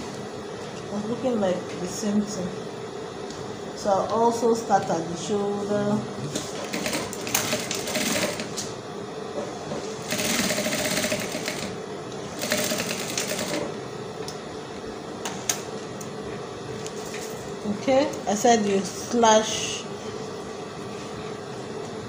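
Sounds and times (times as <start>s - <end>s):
industrial sewing machine stitching: 6.6s - 8.6s, 10.0s - 13.7s.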